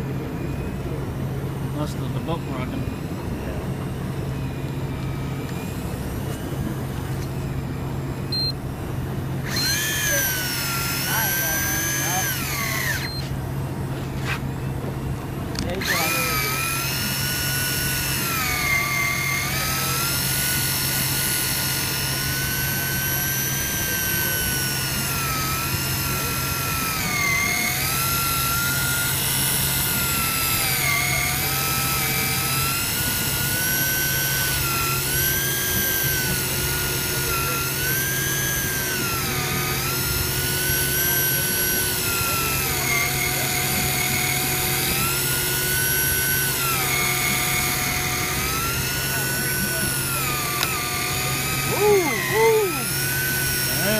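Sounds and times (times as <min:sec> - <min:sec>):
fishing reel motor whining: 0:04.0 - 0:13.5, 0:15.5 - 0:53.9.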